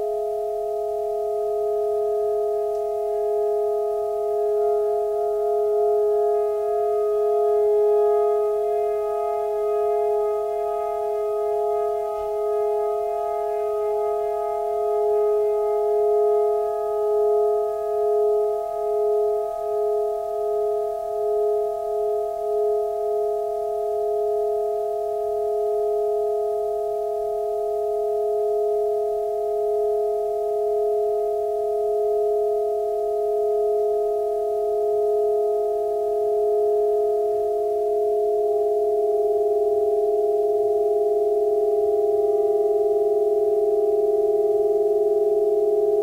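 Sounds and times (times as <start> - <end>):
saxophone and electronic drone: 6.1 - 17.9.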